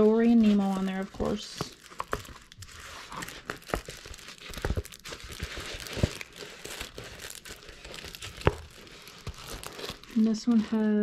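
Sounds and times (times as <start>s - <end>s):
plastic film crinkling: 0.0s - 11.0s.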